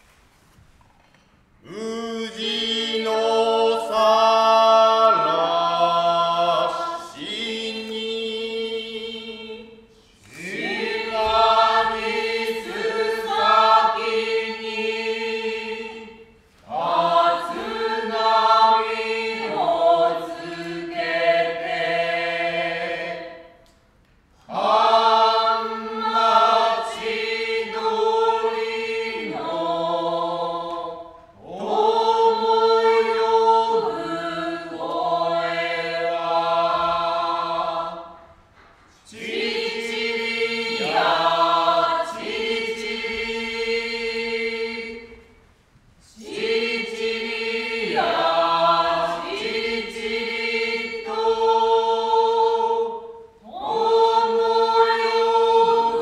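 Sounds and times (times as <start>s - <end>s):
chorus chanting in unison: 1.6s - 23.6s, 24.4s - 38.4s, 39.0s - 45.4s, 46.0s - 56.0s.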